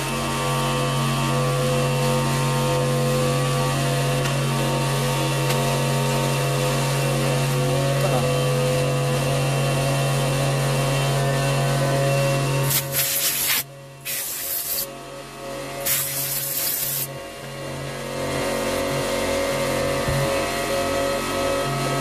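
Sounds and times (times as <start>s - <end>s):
hissing spray: 12.7s - 14.9s, 15.8s - 17.1s.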